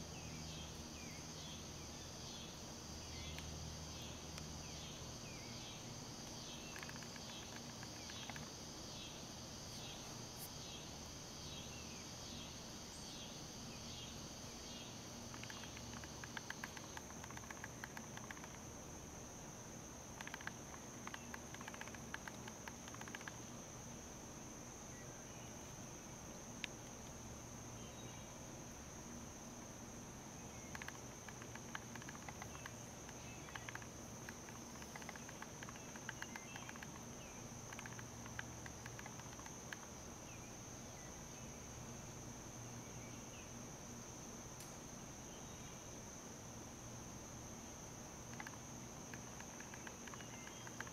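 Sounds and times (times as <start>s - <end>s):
insect trill: 0.0s - 50.9s
faint clicks and ticks: 6.2s - 8.5s, 15.3s - 18.7s, 20.2s - 23.4s, 30.6s - 39.9s, 48.2s - 50.9s.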